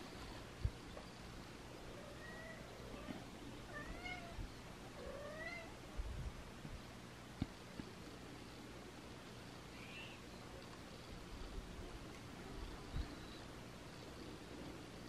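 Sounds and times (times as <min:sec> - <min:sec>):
cat meowing: 0:03.7 - 0:04.4, 0:05.0 - 0:05.7.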